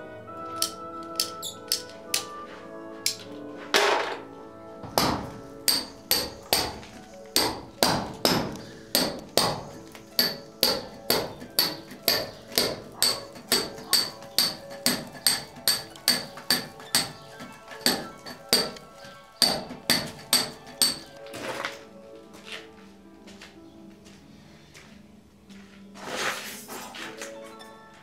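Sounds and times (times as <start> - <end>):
hammer striking chisel: 0.6 - 2.3, 4.8 - 21.2.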